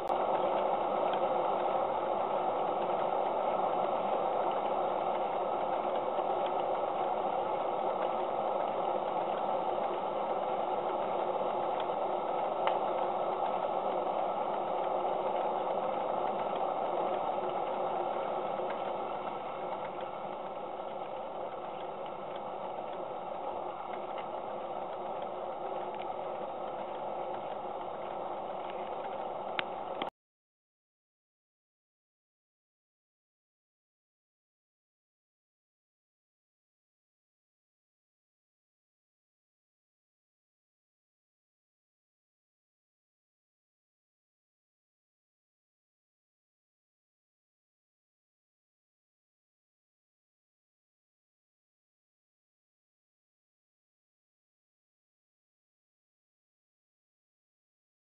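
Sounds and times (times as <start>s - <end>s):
steam engine mechanical clatter: 0.0s - 30.1s.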